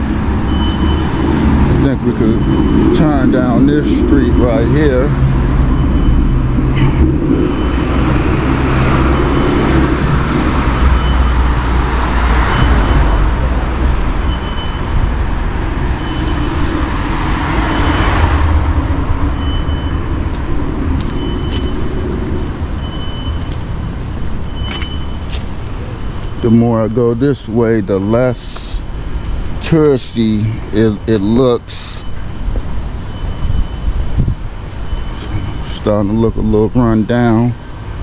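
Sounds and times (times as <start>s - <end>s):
low engine rumble: 0.0s - 38.0s
vehicles passing: 0.0s - 38.0s.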